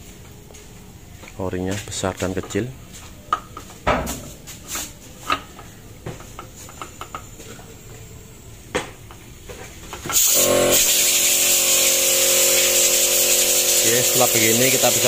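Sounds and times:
vacuum pump hissing with hum: 0:00.0 - 0:15.0.

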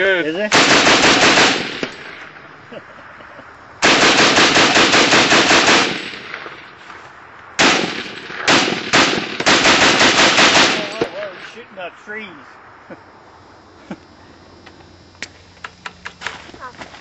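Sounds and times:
machine gun firing bursts: 0:00.5 - 0:02.2, 0:03.8 - 0:06.7, 0:07.6 - 0:11.2.

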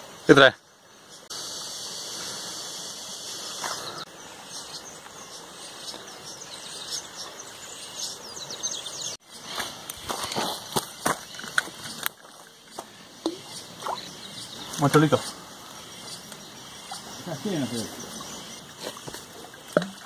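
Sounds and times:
high insect buzz: 0:00.9 - 0:08.8, 0:12.8 - 0:20.0.

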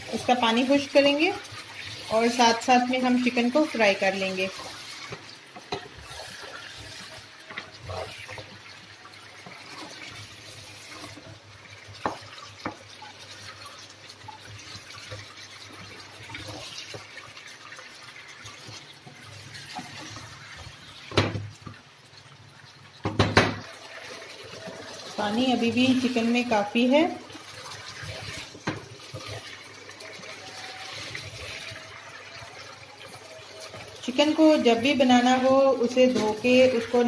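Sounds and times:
chicken sizzling in a frying pan: 0:00.0 - 0:37.0
wooden spatula knocking on pan: 0:12.0 - 0:12.8, 0:21.1 - 0:21.5, 0:23.0 - 0:23.6.

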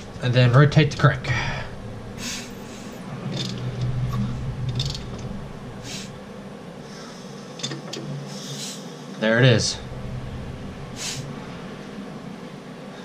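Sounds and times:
low steady hum: 0:00.0 - 0:13.0
air hissing from spark plug hole: 0:05.8 - 0:06.2.

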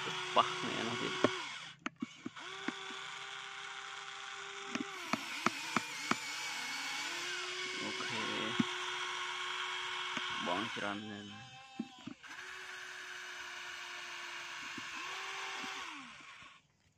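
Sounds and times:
electric motors whining: 0:00.0 - 0:16.9
sharp clicks: 0:01.1 - 0:03.1, 0:04.6 - 0:06.3.

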